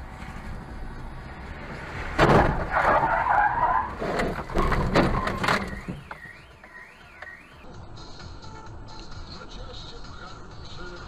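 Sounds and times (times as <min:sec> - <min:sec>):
vehicle skidding on tarmac: 0:00.0 - 0:05.8.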